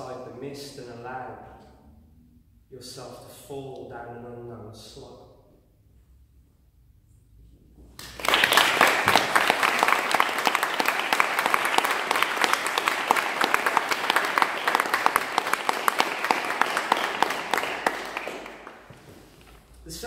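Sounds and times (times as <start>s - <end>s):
audience applauding: 8.0s - 19.0s.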